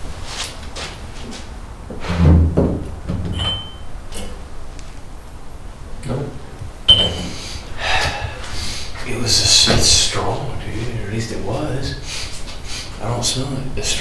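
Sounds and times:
knocks and movement noises: 0:00.0 - 0:05.0, 0:06.6 - 0:11.2
high-pitched beep: 0:06.9 - 0:07.3.

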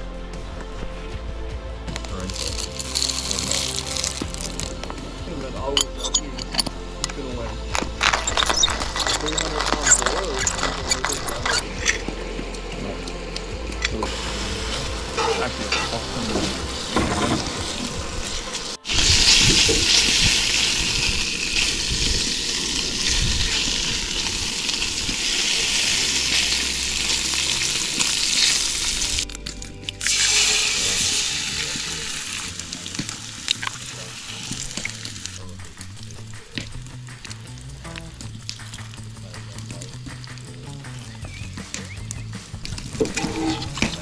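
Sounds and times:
music: 0:00.0 - 0:44.0
food sizzling in a skillet: 0:14.1 - 0:29.3, 0:30.0 - 0:35.4.

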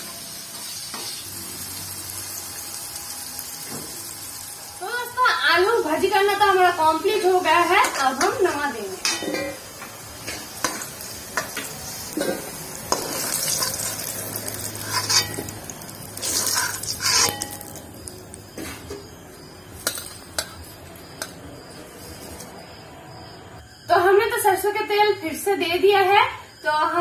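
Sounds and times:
oil sizzling: 0:00.0 - 0:22.6
ladle scraping metal wok: 0:09.0 - 0:17.8.

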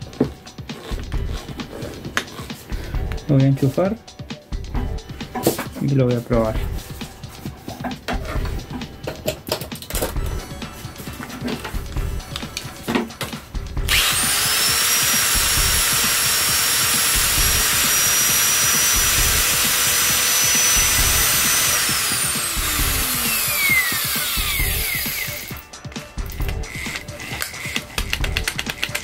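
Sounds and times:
angle grinder whining: 0:13.8 - 0:28.5.

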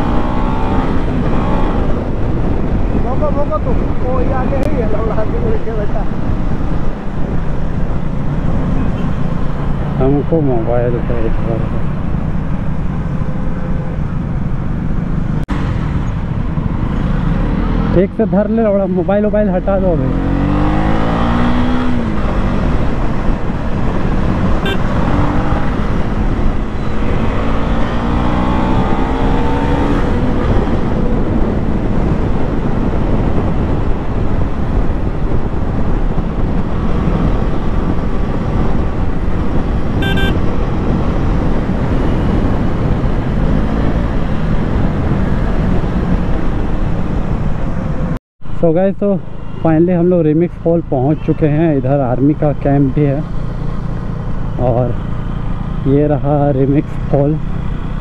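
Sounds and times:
motorcycle engine accelerating: 0:00.0 - 0:03.1, 0:06.3 - 0:18.2, 0:19.5 - 0:48.2
wind noise on microphone: 0:00.0 - 0:19.3, 0:20.0 - 0:48.6.

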